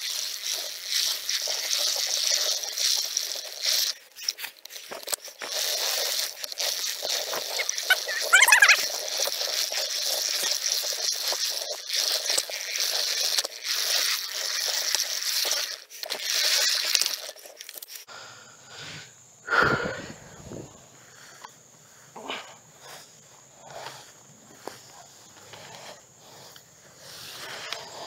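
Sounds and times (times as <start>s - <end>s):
tall grass rustling and crackling: 0.0s - 18.1s, 22.6s - 28.0s.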